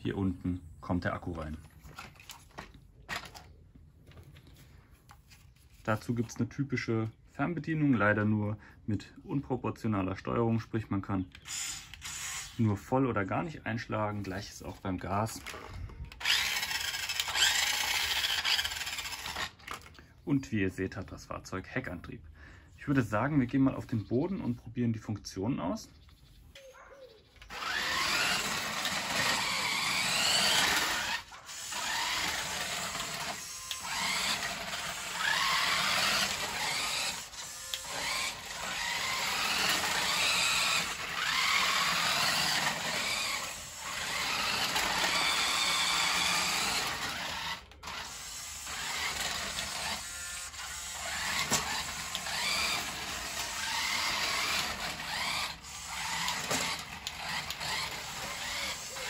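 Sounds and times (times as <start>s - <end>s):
toy truck electric motor whining: 11.4s - 12.9s, 14.7s - 20.0s, 27.4s - 59.0s.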